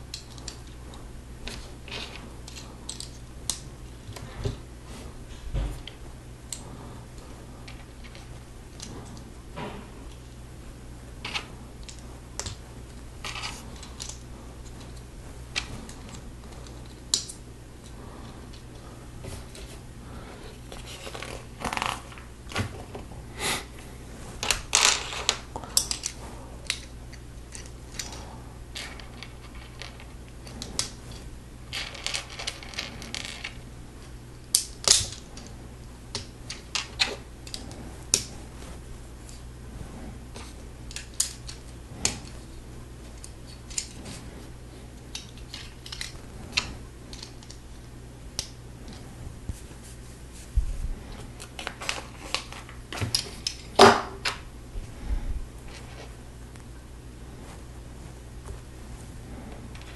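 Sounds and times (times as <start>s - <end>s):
loose pieces rattling: 31.7s - 33.6s.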